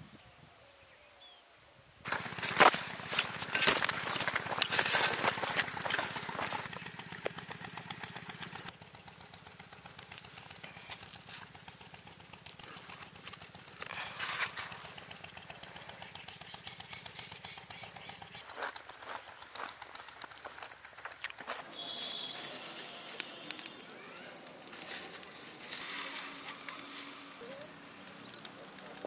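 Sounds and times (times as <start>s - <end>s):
leaves and plants rustling: 2.0s - 7.5s, 9.6s - 16.0s, 18.1s - 29.0s
small engine humming: 2.0s - 29.0s.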